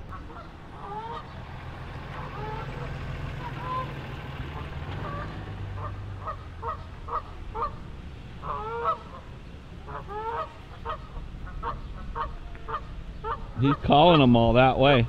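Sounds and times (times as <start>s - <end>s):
geese honking: 0.0s - 14.3s.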